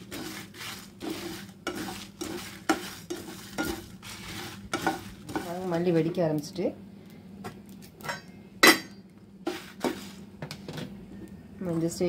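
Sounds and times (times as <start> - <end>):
spatula stirring seeds in pan: 0.0 - 6.4, 9.4 - 10.2.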